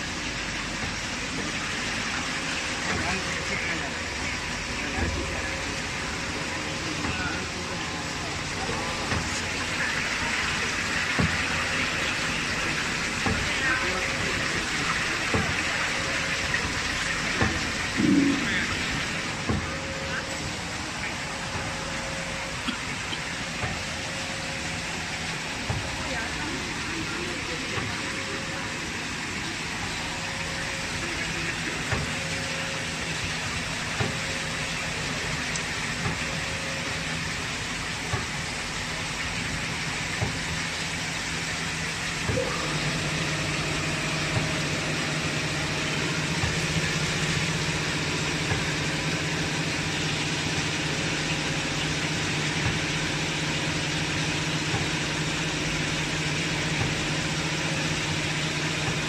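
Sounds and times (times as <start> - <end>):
machine humming: 0.0 - 59.0
deep hum: 2.8 - 38.9.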